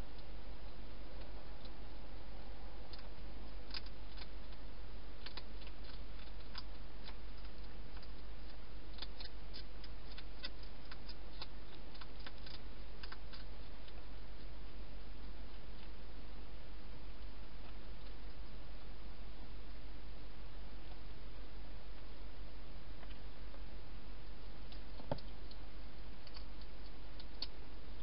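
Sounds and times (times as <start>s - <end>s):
hedgehog chewing: 0.0s - 22.3s, 22.9s - 28.0s
steady low hum: 0.0s - 28.0s.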